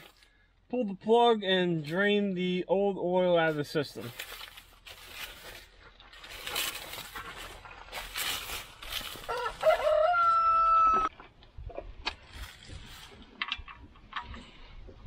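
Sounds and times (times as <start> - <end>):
rooster crowing: 9.1 - 11.1.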